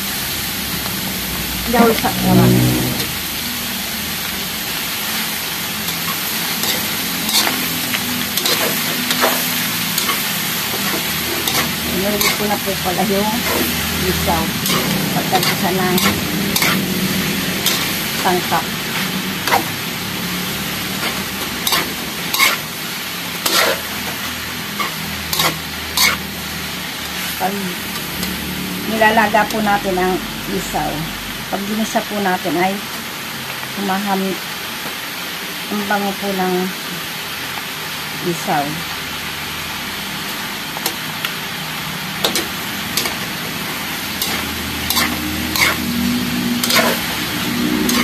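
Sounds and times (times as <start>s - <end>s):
food sizzling in a wok: 0.0s - 48.0s
metal spatula scraping a wok: 1.7s - 3.4s, 5.8s - 27.4s, 42.2s - 48.0s.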